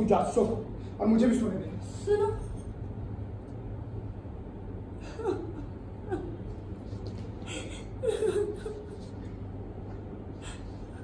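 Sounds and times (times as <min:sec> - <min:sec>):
low steady hum: 0:00.0 - 0:11.0
woman sobbing: 0:05.0 - 0:06.6, 0:07.4 - 0:09.3.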